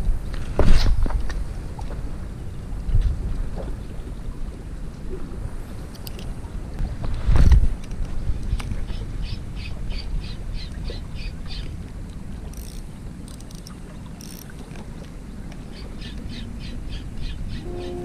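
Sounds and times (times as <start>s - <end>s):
fishing reel ticking: 12.5s - 14.7s
wind rumble: 15.2s - 18.0s.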